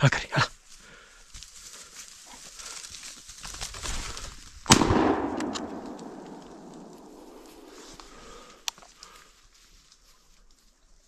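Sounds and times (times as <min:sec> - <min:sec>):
rustle of brush: 0:00.5 - 0:04.6, 0:05.8 - 0:11.0
shotgun shot with echo: 0:04.7 - 0:07.7.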